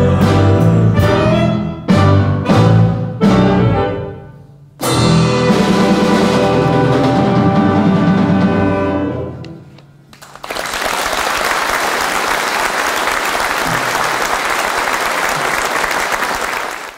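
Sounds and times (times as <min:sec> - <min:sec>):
audience applause: 0:10.1 - 0:16.9.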